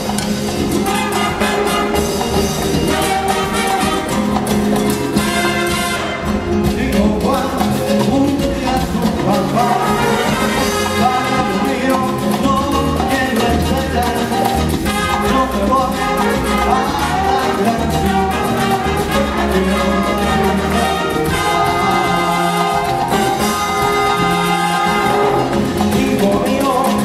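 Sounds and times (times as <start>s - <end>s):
salsa band playing: 0.0s - 27.0s
trumpets: 0.8s - 6.6s, 9.6s - 12.0s, 14.8s - 25.8s.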